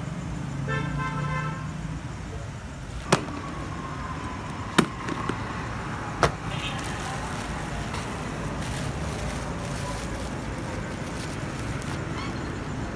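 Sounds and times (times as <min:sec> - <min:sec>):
traffic noise: 0:00.0 - 0:12.9.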